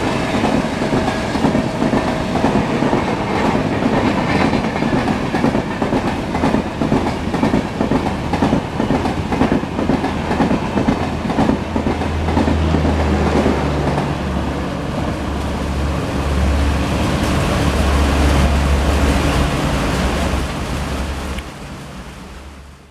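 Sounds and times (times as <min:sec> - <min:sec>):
train wheels clattering: 0:00.0 - 0:15.0
train low rumble: 0:00.0 - 0:22.9.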